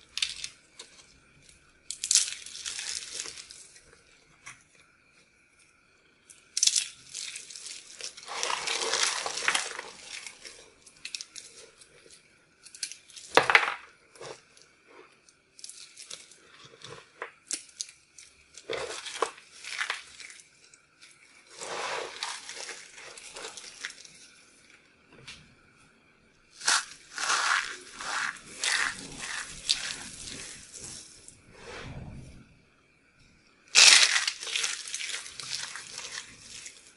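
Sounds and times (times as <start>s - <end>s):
fingers crushing crumbled soap: 0.0s - 4.6s, 6.4s - 14.7s, 15.3s - 24.3s, 26.6s - 31.0s, 33.8s - 36.9s.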